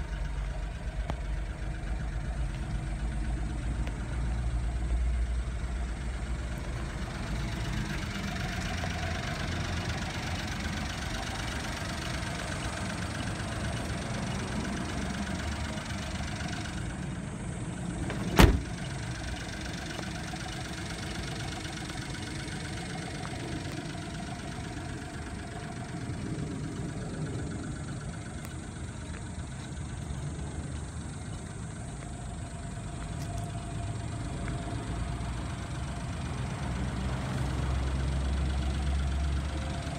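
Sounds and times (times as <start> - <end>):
small engine idling: 0.0 - 39.9
cab door shutting: 18.0 - 18.9.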